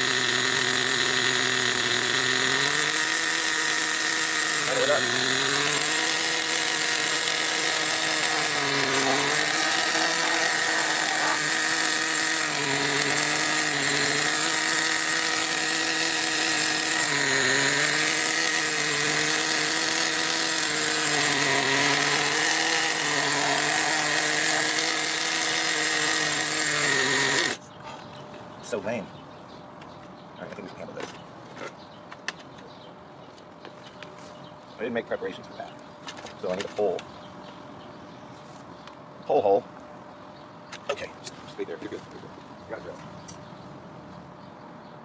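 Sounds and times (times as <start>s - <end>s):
small nitro engine idling: 0.0s - 27.6s.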